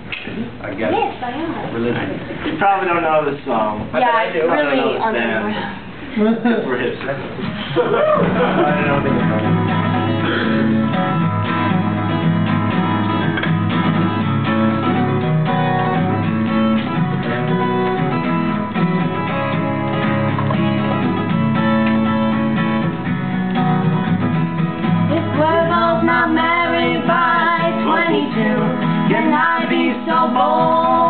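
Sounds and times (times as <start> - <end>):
acoustic guitar strummed: 7.4 - 31.0.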